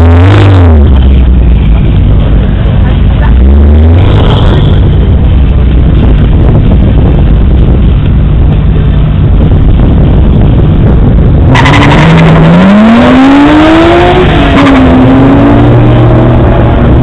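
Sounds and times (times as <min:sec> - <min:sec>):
drag-race cars launching: 0:11.5 - 0:17.0.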